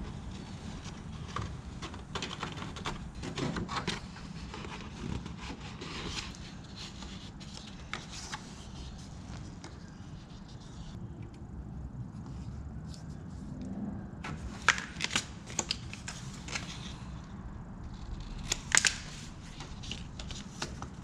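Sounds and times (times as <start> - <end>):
paper crinkling and handling: 0.1 - 11.0, 14.3 - 17.2, 18.3 - 21.0.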